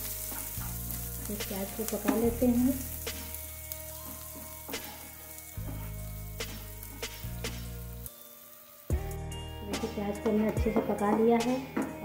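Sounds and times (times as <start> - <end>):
onion sizzling in hot oil: 0.0 - 12.0
spatula tapping pan: 2.0 - 2.4.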